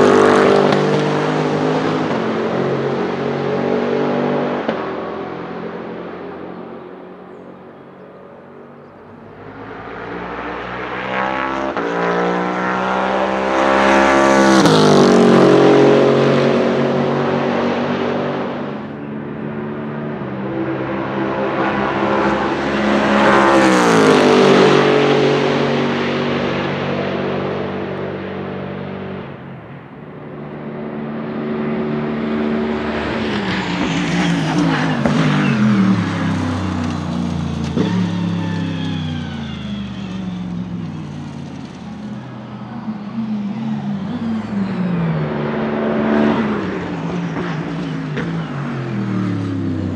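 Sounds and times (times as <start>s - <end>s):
race car accelerating past: 0.0s - 49.9s.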